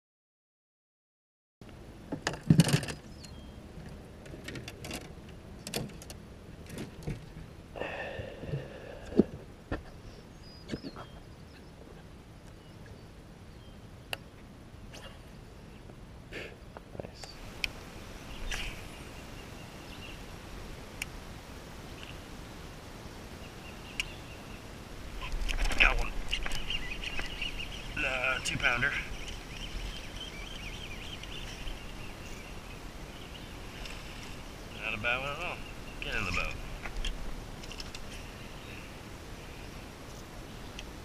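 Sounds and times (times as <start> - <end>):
open-air ambience over water: 1.6 - 41.0
faint high bird chirps: 10.0 - 11.8, 26.3 - 36.6.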